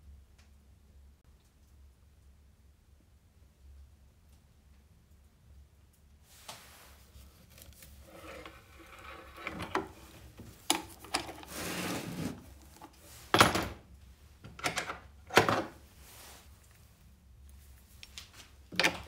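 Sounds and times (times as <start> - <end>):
scraping rub: 6.3 - 13.3.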